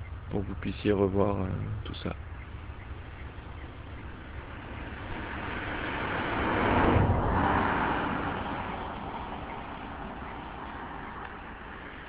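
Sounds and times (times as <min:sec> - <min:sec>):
car passing by: 0:03.1 - 0:12.0.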